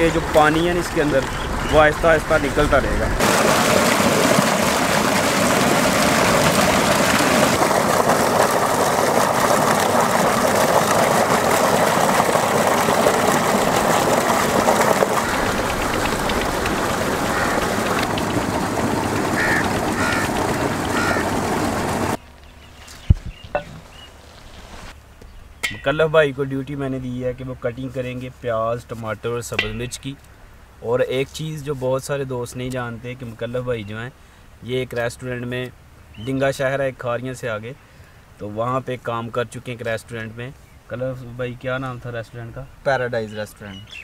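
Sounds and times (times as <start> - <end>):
water gushing from a pipe: 3.2 - 22.2
water splashing over a steel bowl: 3.2 - 22.2, 29.6 - 30.1.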